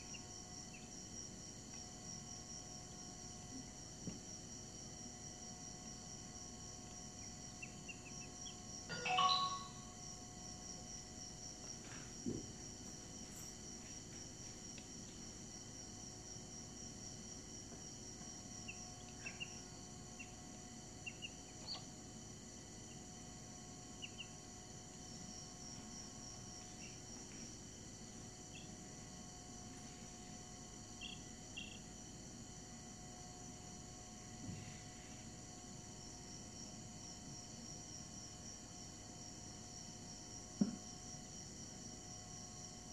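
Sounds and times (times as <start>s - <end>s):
soft knock: 40.6s - 40.8s.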